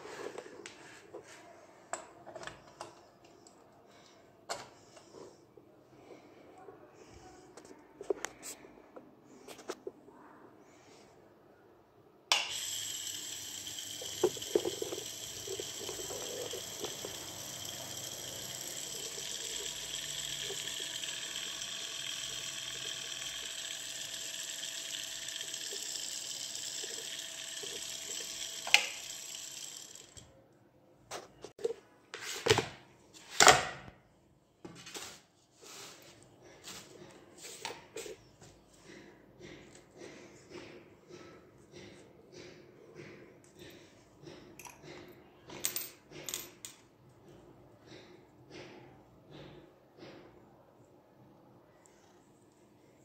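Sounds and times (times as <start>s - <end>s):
pump motor whirring: 12.3s - 30.3s.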